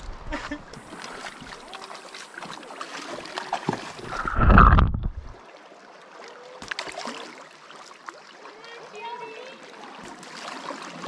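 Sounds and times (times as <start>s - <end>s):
river water splashing: 0.0s - 11.0s
water rushing burst: 0.8s - 5.4s.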